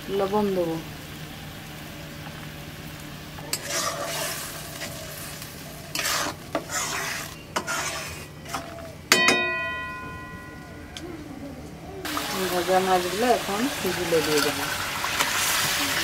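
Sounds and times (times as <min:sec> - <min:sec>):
food sizzling in a wok: 0:00.0 - 0:08.7, 0:12.1 - 0:16.0
metal spatula scraping pan: 0:03.5 - 0:08.8.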